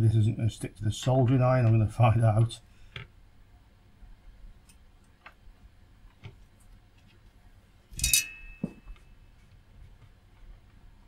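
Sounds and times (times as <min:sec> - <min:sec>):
metallic clink: 0:07.9 - 0:09.0.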